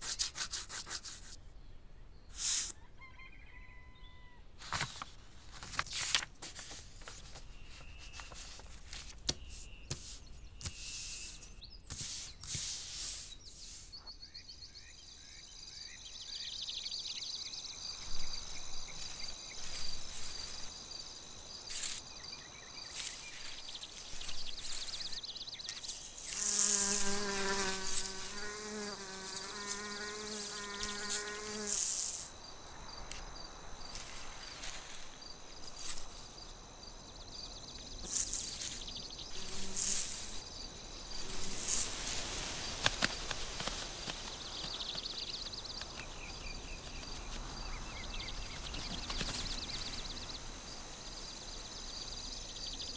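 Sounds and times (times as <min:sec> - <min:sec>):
high pulsing insect chirping: 0:14.6 - 0:52.9
bumblebee buzzing: 0:23.0 - 0:32.4, 0:38.0 - 0:40.5, 0:41.2 - 0:42.2.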